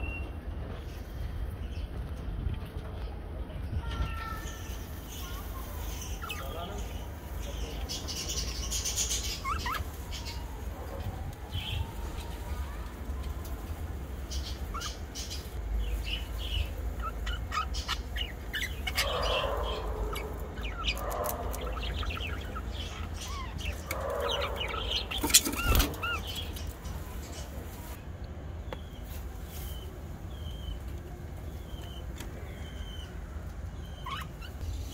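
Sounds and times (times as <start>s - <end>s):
budgerigars chirping and chattering: 4.4s - 12.2s, 14.2s - 28.0s, 30.3s - 34.9s.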